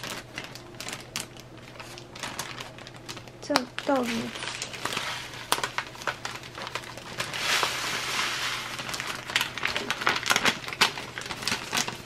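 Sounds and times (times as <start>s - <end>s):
plastic bag and paper crinkling: 0.0s - 12.0s
crumbs hissing into bag: 3.9s - 12.0s.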